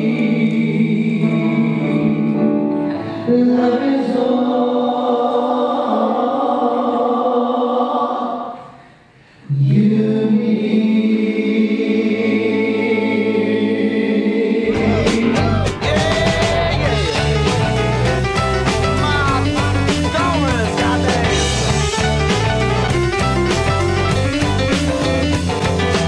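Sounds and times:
choir singing held chords: 0.0s - 26.0s
rock music with guitar and bass: 14.7s - 26.0s.

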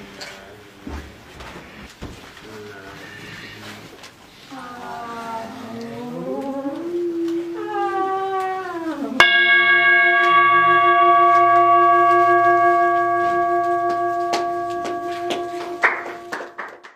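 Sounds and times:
wavering gliding tone: 9.1s - 16.6s
bell ringing: 9.2s - 16.9s.

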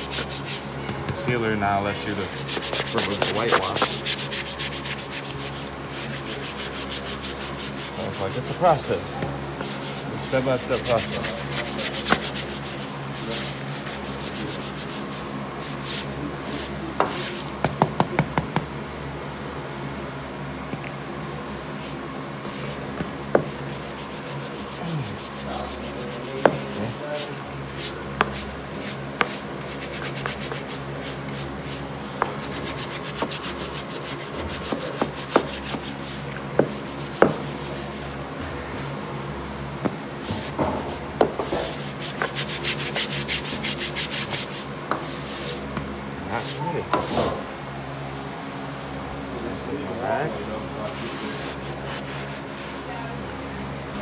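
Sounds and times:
brushes scrubbing wet tile: 0.0s - 0.8s, 2.2s - 9.0s, 9.6s - 17.5s, 21.4s - 38.1s, 40.2s - 45.7s
steady low hum: 0.0s - 54.0s
brush knocking against tile: 26.4s - 26.8s, 34.3s - 35.8s.

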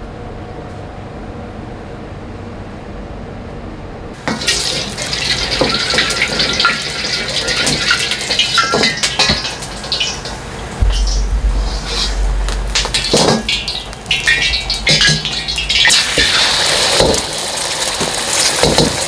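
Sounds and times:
water hissing in hot wok: 4.2s - 10.4s, 11.0s - 19.0s
low rumble: 10.8s - 16.8s
metal ladle scraping a pan: 11.0s - 17.0s.

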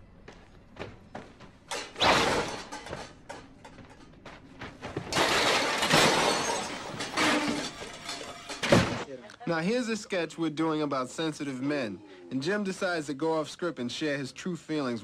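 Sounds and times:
objects crashing and clattering: 1.7s - 4.1s, 4.8s - 9.0s.

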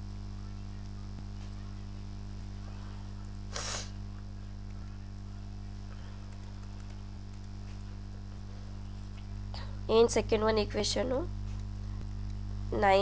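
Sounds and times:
low electrical hum: 0.0s - 13.0s
person breathing out: 3.5s - 3.9s.

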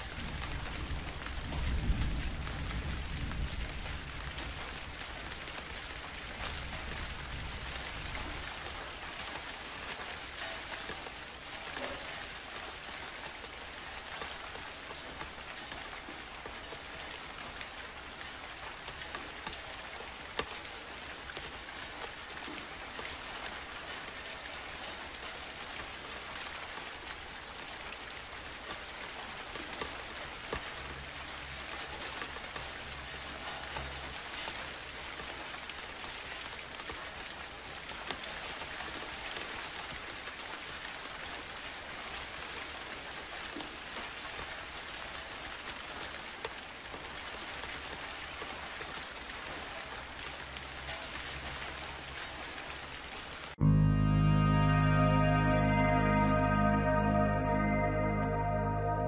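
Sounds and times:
raindrops ticking close by: 0.0s - 53.6s
steady rain falling: 0.0s - 53.6s, 54.3s - 59.0s.

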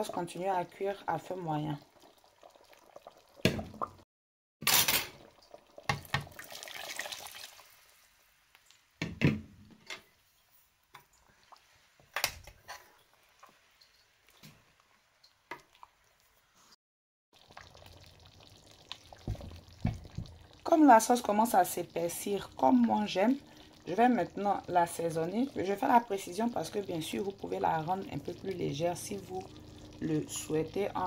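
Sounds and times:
thick sauce bubbling in a pot: 0.0s - 4.0s, 5.2s - 8.1s, 17.4s - 31.0s.

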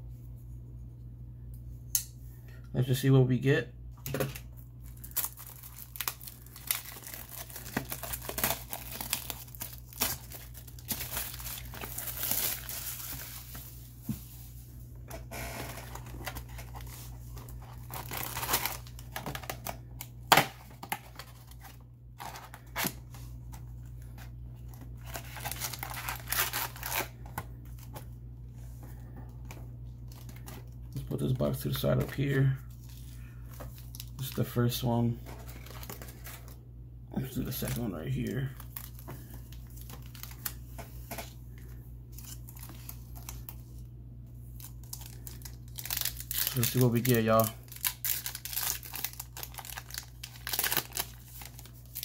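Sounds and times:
foil packs handled: 4.8s - 13.8s, 15.1s - 23.2s, 24.0s - 28.0s, 28.9s - 36.6s, 37.2s - 43.7s, 44.6s - 52.0s
plastic shrink wrap tearing: 4.9s - 13.6s, 15.3s - 21.6s, 25.0s - 27.2s, 44.6s - 52.0s.

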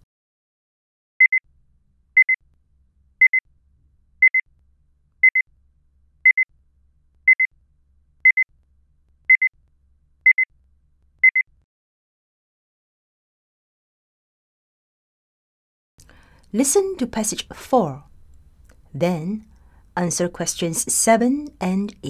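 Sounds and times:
timer double beeps: 4.2s - 4.4s, 5.2s - 5.4s, 7.3s - 7.5s, 11.2s - 11.4s.

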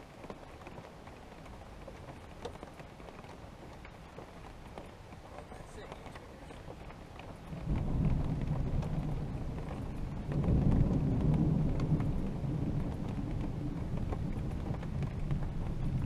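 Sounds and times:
light rain pattering: 0.0s - 16.0s
thunder rumbling: 5.5s - 16.0s.

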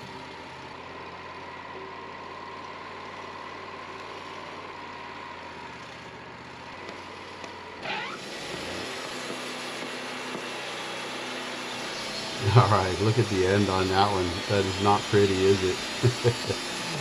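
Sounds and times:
band saw cutting log: 0.0s - 17.0s
sawmill engine running: 0.0s - 17.0s
rising whine: 7.8s - 9.2s, 11.4s - 17.0s.

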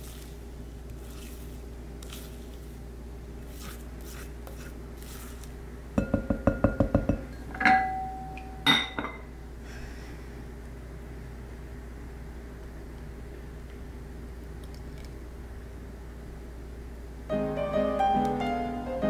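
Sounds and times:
soft stirring of batter: 0.0s - 6.6s.

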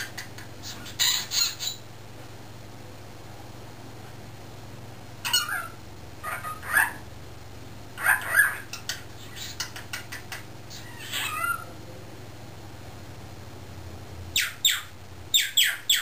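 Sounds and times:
cockatiel clicks: 0.0s - 0.5s, 8.7s - 10.5s
cockatiel calls: 0.0s - 1.8s, 5.2s - 7.0s, 8.0s - 9.9s, 10.7s - 11.7s, 14.4s - 16.0s.

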